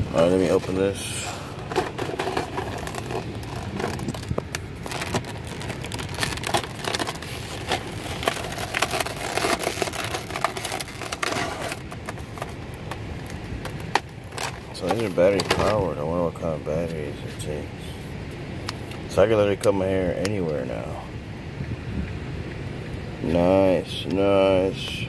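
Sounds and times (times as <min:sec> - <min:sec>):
plastic blister pack crackling: 0:00.4 - 0:15.8.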